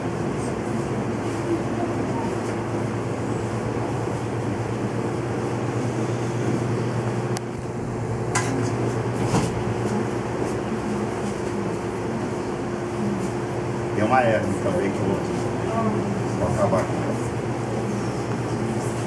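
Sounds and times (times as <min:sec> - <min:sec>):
droning room hum: 0:00.0 - 0:19.0.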